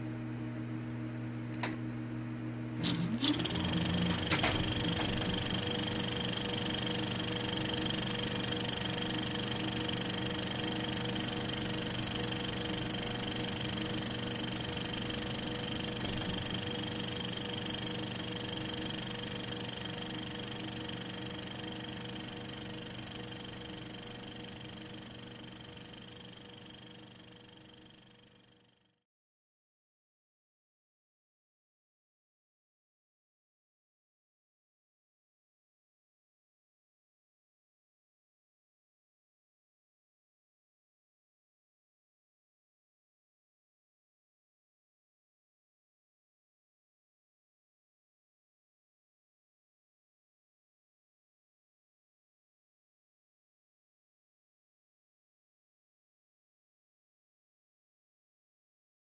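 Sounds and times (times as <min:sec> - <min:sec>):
mechanical whir with whine: 0:02.7 - 0:28.8.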